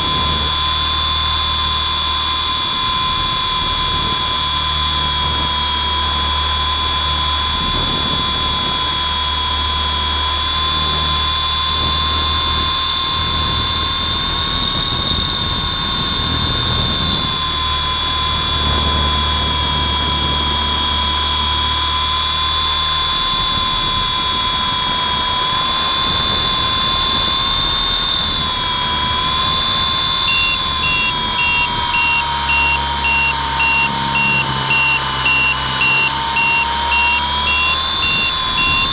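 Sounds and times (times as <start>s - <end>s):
helicopter motor whine: 23.6s - 38.9s.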